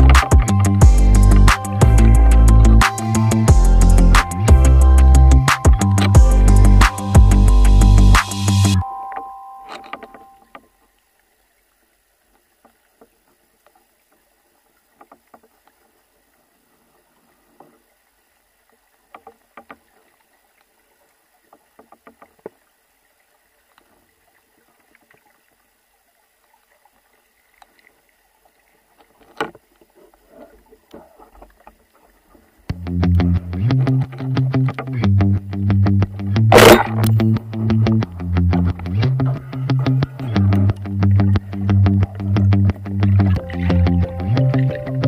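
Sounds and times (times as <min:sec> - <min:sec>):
background music: 0:00.0 - 0:10.4, 0:32.7 - 0:45.0
faint underwater clicks and taps: 0:12.2 - 0:15.9, 0:17.2 - 0:18.0, 0:18.6 - 0:25.6, 0:27.5 - 0:35.0.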